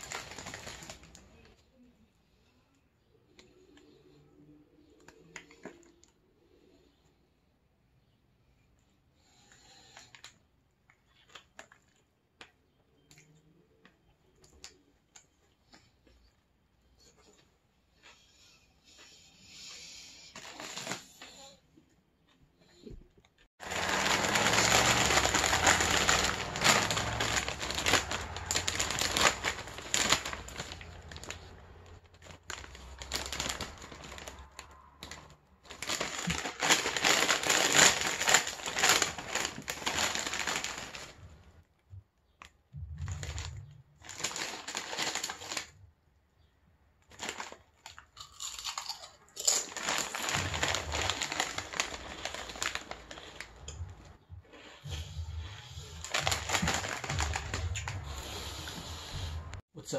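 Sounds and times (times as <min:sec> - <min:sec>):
chip bag crinkling: 0:00.0 - 0:01.6, 0:11.0 - 0:12.5, 0:20.4 - 0:21.4, 0:23.6 - 0:41.5, 0:42.4 - 0:45.8, 0:47.0 - 0:54.1, 0:56.0 - 0:58.8.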